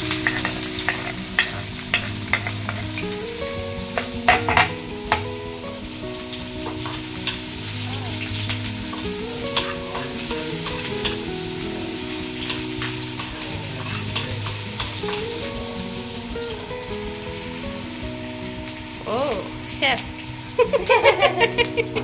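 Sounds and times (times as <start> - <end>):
spoon clicking and scraping pan: 0.0 - 3.1, 8.9 - 11.3, 12.2 - 15.3
onions sizzling in oil: 0.0 - 22.0.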